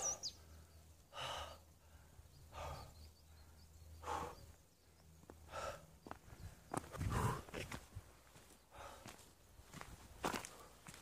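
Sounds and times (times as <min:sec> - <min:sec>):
person breathing heavily: 0:00.0 - 0:07.9, 0:08.6 - 0:09.5.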